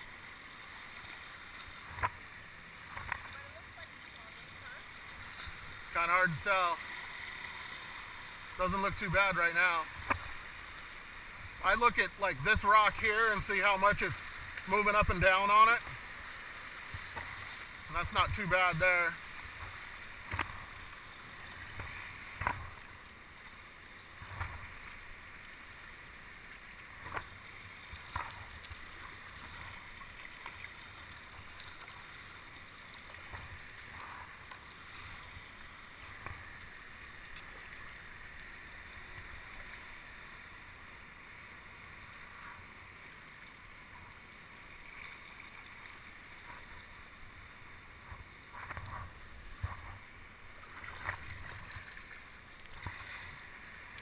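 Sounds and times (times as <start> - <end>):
water lapping against rocks: 26.6 - 40.5, 48.0 - 54.0.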